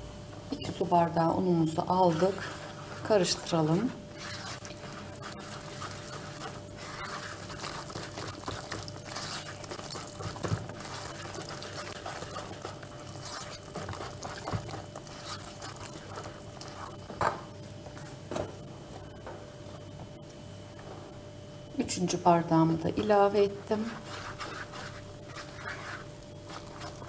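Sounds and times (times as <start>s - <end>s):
whisk swishing in batter: 1.6s - 17.2s, 23.7s - 27.0s.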